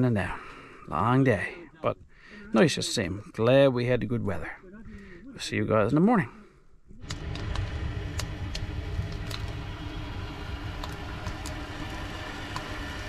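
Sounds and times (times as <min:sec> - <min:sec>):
burning wood crackling: 0:07.0 - 0:13.0
stove fire low rumble: 0:07.0 - 0:13.0.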